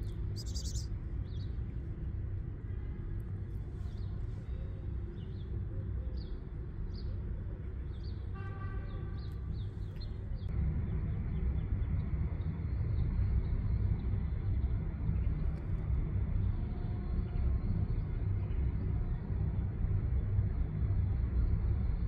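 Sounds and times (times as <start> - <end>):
small bird chirping: 0.0 - 1.6
low outdoor rumble: 0.0 - 22.0.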